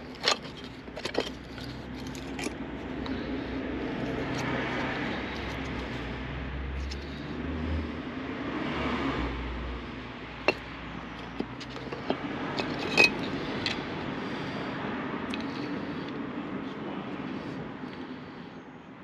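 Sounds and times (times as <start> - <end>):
metal brake pads clinking: 0.0 - 3.3, 10.4 - 13.9
steady background rumble: 0.0 - 8.5.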